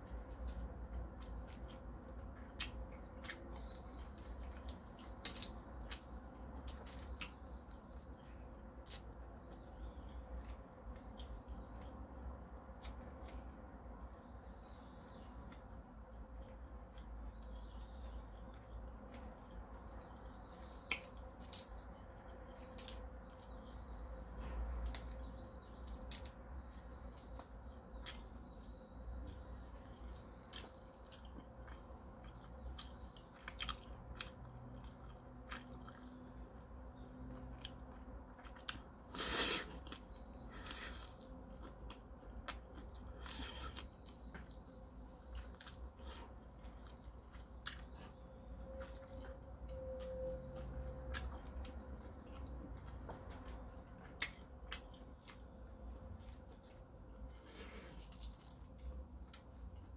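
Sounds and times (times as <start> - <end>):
man chewing wet mouth sounds: 0.0 - 23.7, 29.2 - 59.9
faint steady hum: 0.0 - 59.9.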